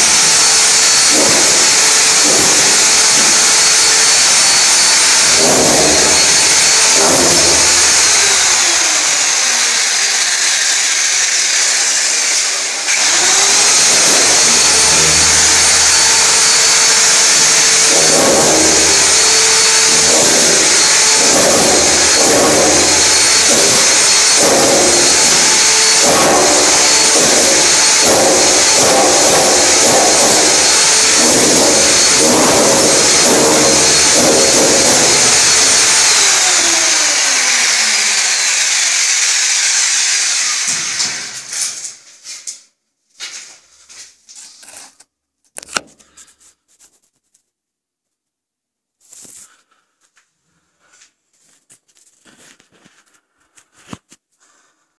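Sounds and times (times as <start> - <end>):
hammer drill chiselling wall: 0.0 - 42.0.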